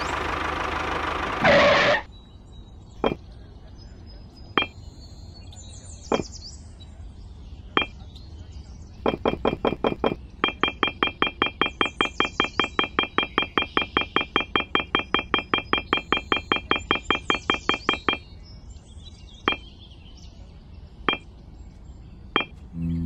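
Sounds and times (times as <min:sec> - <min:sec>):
rapid electronic beeping: 0:03.0 - 0:03.2, 0:04.6 - 0:04.8, 0:09.0 - 0:18.3, 0:22.4 - 0:22.6.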